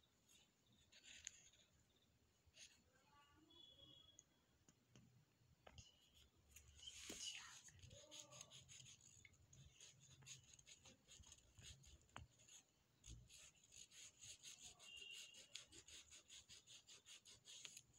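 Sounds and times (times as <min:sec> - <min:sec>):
fast scratchy rubbing: 0:07.1 - 0:17.9.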